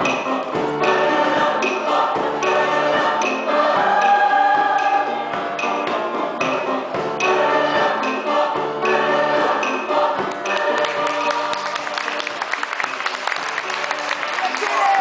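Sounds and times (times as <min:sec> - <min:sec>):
mixed choir singing: 0:00.0 - 0:12.9
applause: 0:10.7 - 0:15.0.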